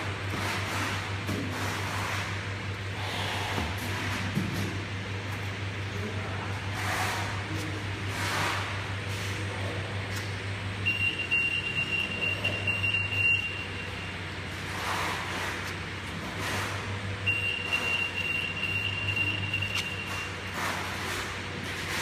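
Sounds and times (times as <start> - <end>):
conveyor belt motor hum: 0.0 - 22.0
high alarm beep: 10.8 - 14.2, 17.2 - 20.4.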